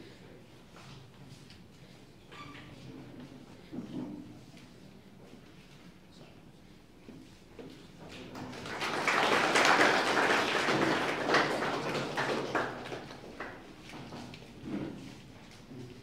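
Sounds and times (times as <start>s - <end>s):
audience applauding: 8.4s - 13.7s.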